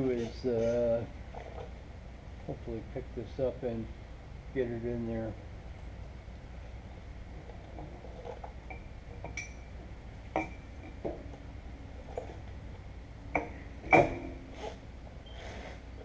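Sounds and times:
metal clinks and knocks: 7.5 - 11.4, 12.0 - 12.5, 13.3 - 14.6.

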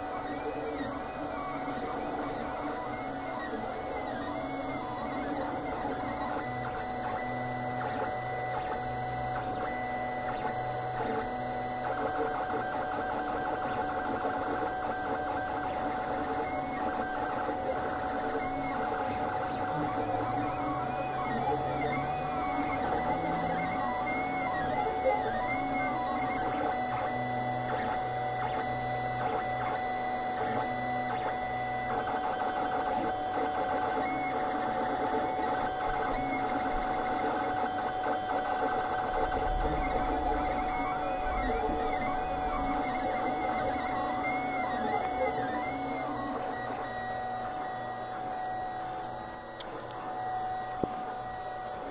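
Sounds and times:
stepper motors whirring: 0.0 - 51.9
steady hum: 34.1 - 51.9.

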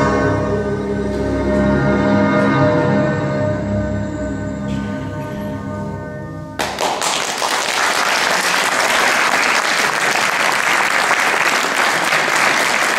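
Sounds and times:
audience applause: 6.6 - 12.9.

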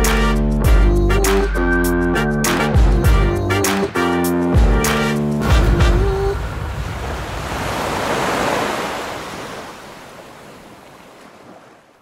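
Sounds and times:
ocean surf on beach: 5.4 - 12.0.

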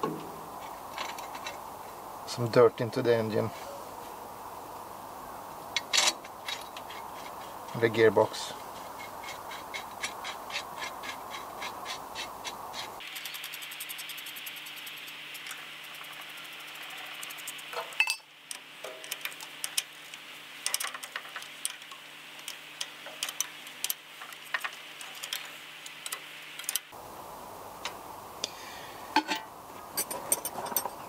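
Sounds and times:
faint steady hum: 0.0 - 31.0.

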